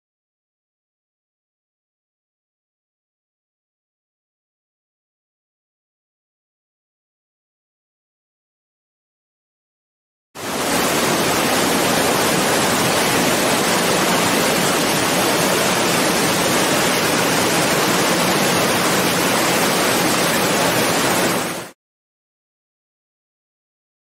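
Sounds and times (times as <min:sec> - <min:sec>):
waterfall rushing: 0:10.4 - 0:21.7.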